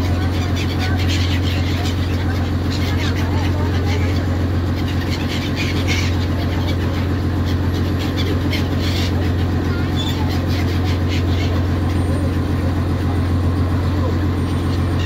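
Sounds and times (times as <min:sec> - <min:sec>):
boat engine drone: 0:00.0 - 0:15.0
gulls calling: 0:00.0 - 0:15.0.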